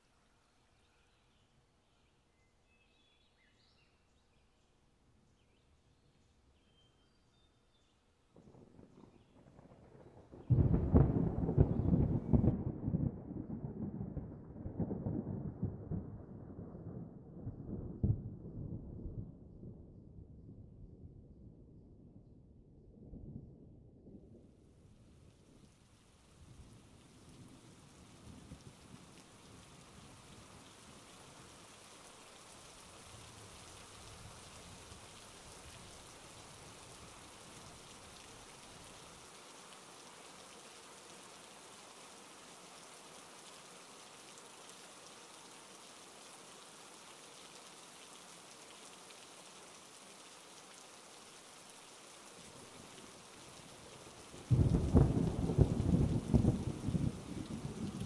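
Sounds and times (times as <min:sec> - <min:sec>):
rain hissing: 0:08.4 - 0:12.5, 0:24.9 - 0:58.0
loud thunderclap: 0:08.4 - 0:19.2, 0:54.5 - 0:58.0
low thunder rumbling: 0:08.4 - 0:24.4, 0:54.5 - 0:58.0.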